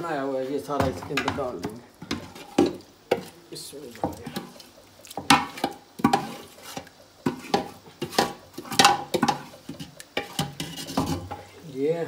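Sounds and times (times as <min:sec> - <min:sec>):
spoon scraping metal pan: 0:00.3 - 0:11.7.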